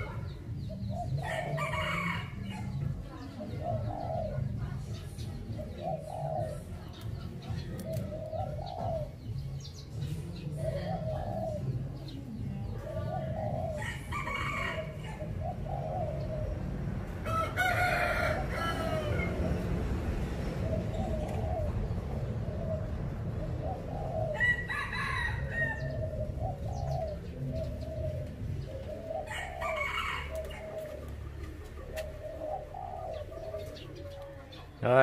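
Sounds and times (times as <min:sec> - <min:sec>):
doves cooing: 0:00.0 - 0:35.0
rooster crowing: 0:17.2 - 0:19.4, 0:24.3 - 0:26.0, 0:29.3 - 0:30.7.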